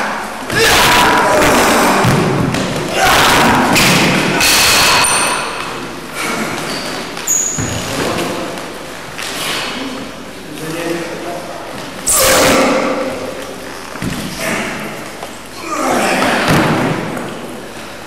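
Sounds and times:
short high squeaks: 6.6 - 7.8.

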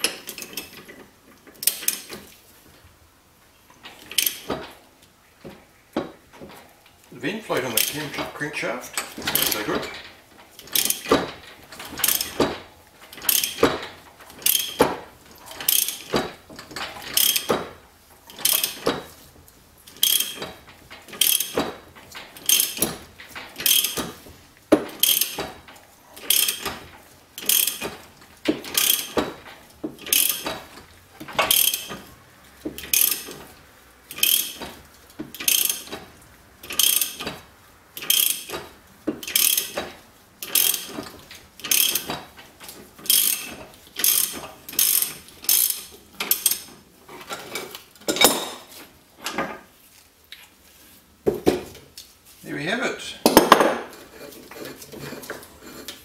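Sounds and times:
ratchet spanner clicking: 13.2 - 13.7, 14.3 - 14.8, 15.6 - 16.1, 19.9 - 20.5, 21.1 - 21.6, 26.2 - 26.7, 27.4 - 27.9, 28.6 - 29.2, 30.0 - 30.5, 31.4 - 31.9, 34.1 - 34.6, 35.3 - 36.0, 36.6 - 37.3, 38.0 - 38.6, 39.2 - 39.8, 40.4 - 41.0, 41.6 - 42.1, 43.0 - 46.7.

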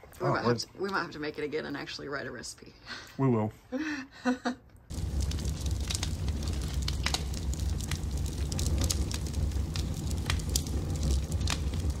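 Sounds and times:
fire crackling and rumbling: 4.9 - 12.0.

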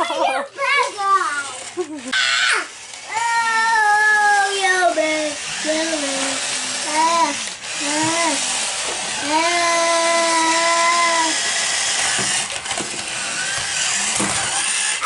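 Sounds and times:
toy cars motors whirring: 0.0 - 15.0
child's drawn-out ooh: 2.2 - 3.9.

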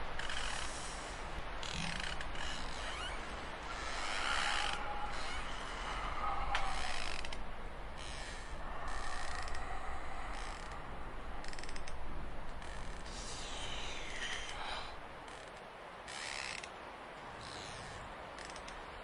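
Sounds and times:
mechanical creaking and grinding: 1.6 - 5.8, 6.4 - 10.8, 11.4 - 14.6
eerie sliding tones: 1.6 - 15.0.

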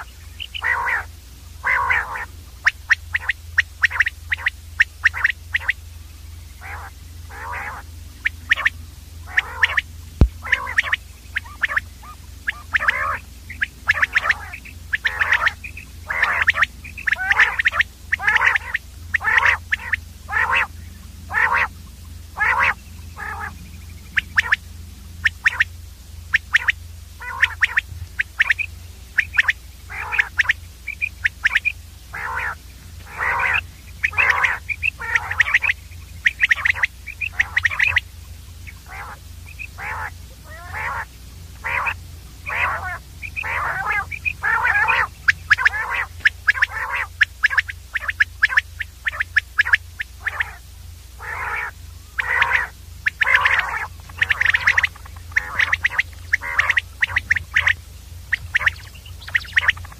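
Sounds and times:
quail calling: 0.0 - 59.9
steady low hum: 0.0 - 59.9.

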